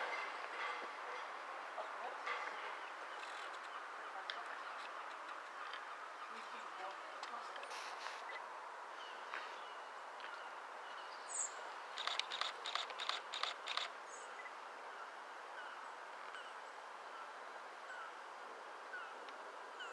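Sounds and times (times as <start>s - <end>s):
outdoor background noise: 0.0s - 19.9s
sharp chirp-like clicks: 12.0s - 13.9s.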